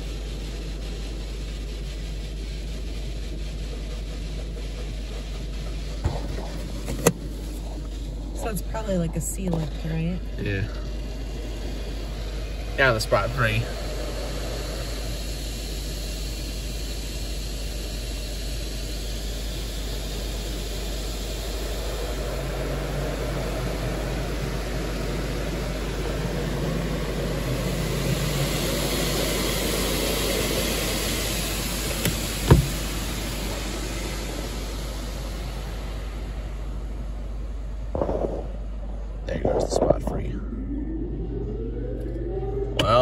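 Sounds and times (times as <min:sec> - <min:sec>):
water spray hissing on car: 0:00.0 - 0:24.2, 0:24.8 - 0:37.0
sharp knock: 0:32.4 - 0:32.8.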